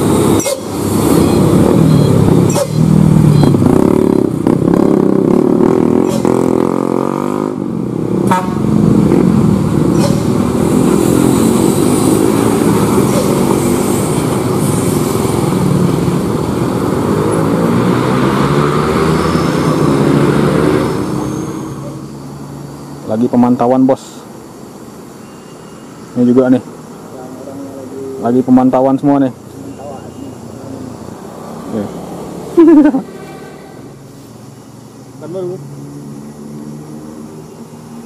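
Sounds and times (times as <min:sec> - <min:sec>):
diesel truck engine under load: 0:00.0 - 0:06.9, 0:07.6 - 0:23.1
motorcycles passing: 0:00.0 - 0:38.0.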